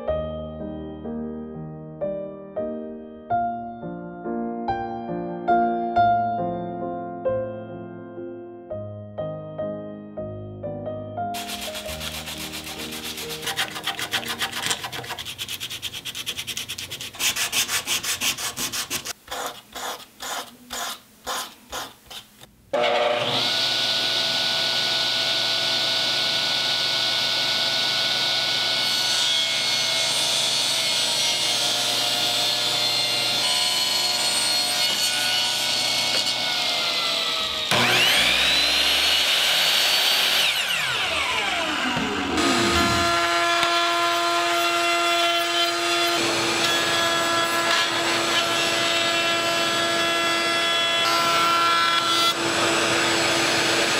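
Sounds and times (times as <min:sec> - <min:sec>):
table saw ripping wood: 0:11.4 - 0:19.2, 0:22.8 - 0:53.9
hand sanding wood: 0:11.4 - 0:22.3
miter saw whining and cutting: 0:22.8 - 0:53.9.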